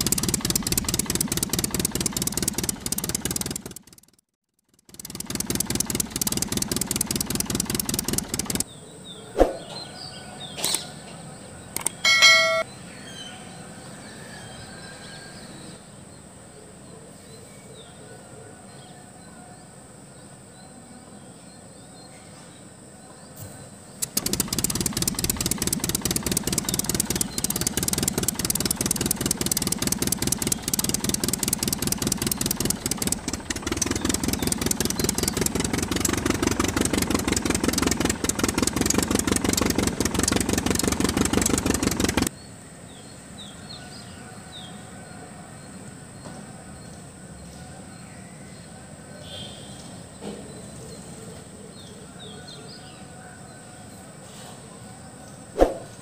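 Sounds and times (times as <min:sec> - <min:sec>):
engine running: 0:00.0 - 0:04.2, 0:04.8 - 0:08.7, 0:24.0 - 0:42.3.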